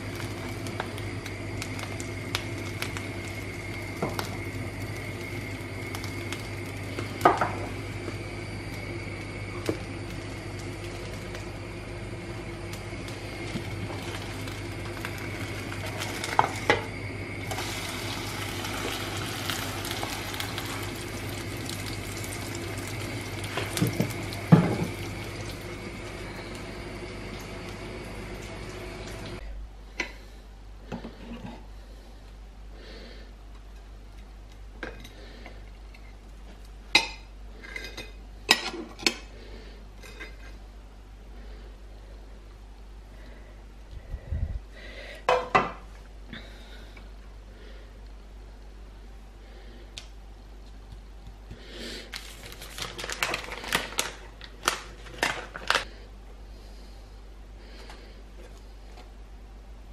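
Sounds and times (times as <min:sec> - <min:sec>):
plastic packaging crinkling: 0:52.0 - 0:55.9.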